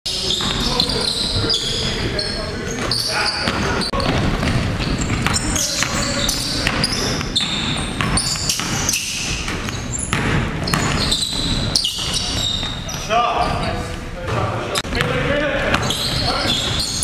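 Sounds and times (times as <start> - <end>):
players' voices: 0.1 - 17.0
sneakers squeaking: 0.1 - 17.0
basketball bouncing on hardwood: 6.6 - 12.7.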